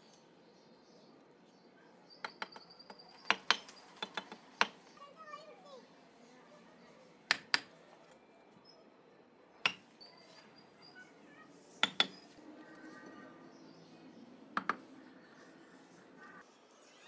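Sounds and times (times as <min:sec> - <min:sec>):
hammer tapping bricks: 0:02.2 - 0:04.8, 0:07.3 - 0:07.7, 0:09.6 - 0:09.9, 0:11.8 - 0:12.3, 0:14.6 - 0:14.8.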